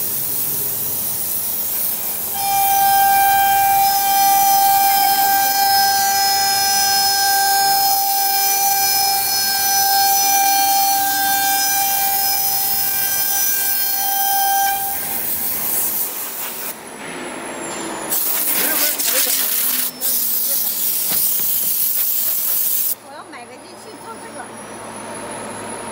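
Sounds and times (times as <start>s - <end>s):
router spindle whining: 0.6s - 16.6s.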